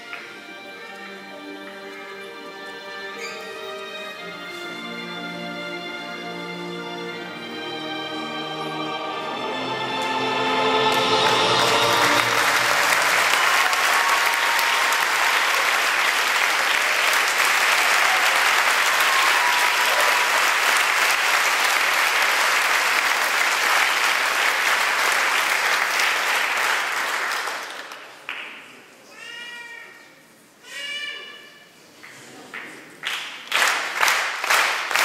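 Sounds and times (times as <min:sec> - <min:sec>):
audience applauding: 0:09.5 - 0:28.6, 0:32.1 - 0:35.0.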